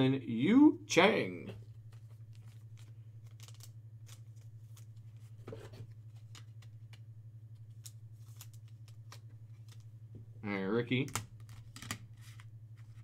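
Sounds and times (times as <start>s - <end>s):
low hum: 0.0s - 13.0s
cards clicking and rustling: 1.8s - 7.0s, 7.6s - 9.9s, 11.0s - 13.0s.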